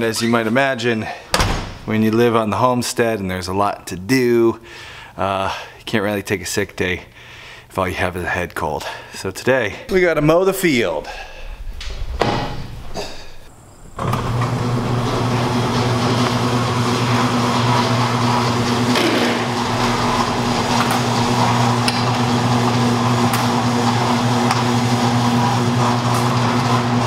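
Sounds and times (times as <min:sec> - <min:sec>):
machine humming: 0:09.9 - 0:27.0.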